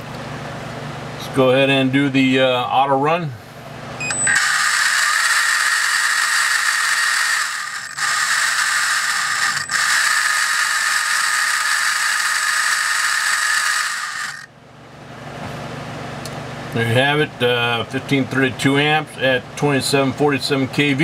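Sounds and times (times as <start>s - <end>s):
electric motor whining: 4.1s - 14.5s
gear noise: 4.1s - 14.5s.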